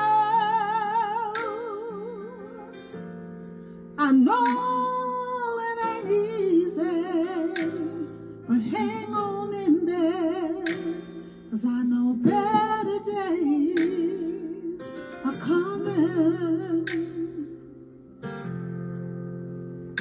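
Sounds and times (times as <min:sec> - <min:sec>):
woman singing with vibrato: 0:00.0 - 0:02.8, 0:04.0 - 0:10.7, 0:11.5 - 0:17.4
backing track of held chords: 0:00.0 - 0:20.0.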